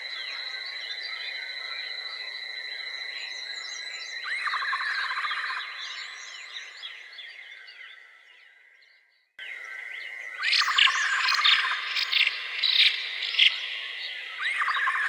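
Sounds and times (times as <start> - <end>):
birds chirping and calling: 10.4 - 15.0.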